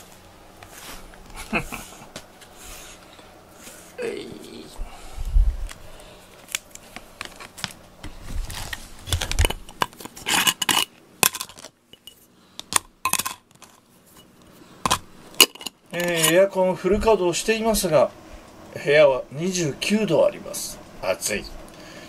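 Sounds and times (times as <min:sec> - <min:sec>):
glass jar and metal lid clinking: 0:09.8 - 0:12.2, 0:12.8 - 0:14.2, 0:14.9 - 0:16.4.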